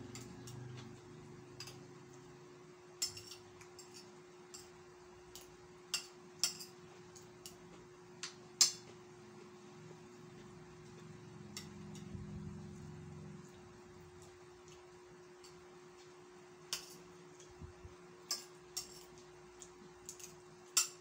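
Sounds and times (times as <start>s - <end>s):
faint steady hum: 0.0s - 21.0s
spoon clinking on plates: 3.0s - 4.7s.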